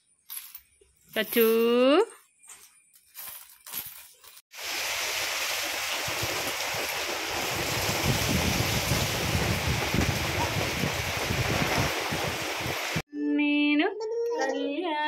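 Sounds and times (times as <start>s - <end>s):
coins clinking in plastic basket: 0.2s - 1.9s, 3.0s - 4.4s
heavy rain: 4.6s - 13.0s.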